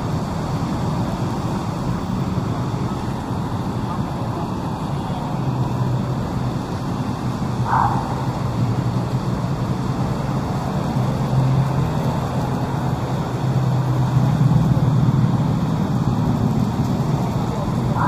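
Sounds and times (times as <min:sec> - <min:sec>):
road traffic rumble: 0:00.0 - 0:18.0.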